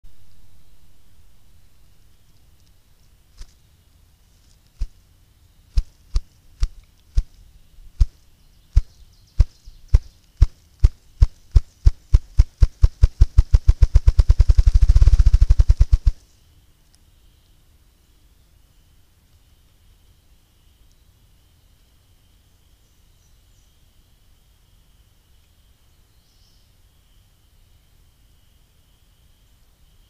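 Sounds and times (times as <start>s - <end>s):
grouse wing-beat drumming: 8.8s - 16.2s.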